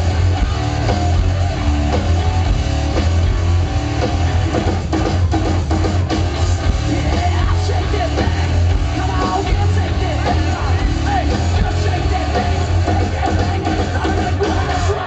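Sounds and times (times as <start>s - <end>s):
distorted electric guitars: 0.0s - 15.0s
drums: 0.0s - 15.0s
heavy bass: 0.0s - 15.0s
shouted vocals: 7.0s - 15.0s.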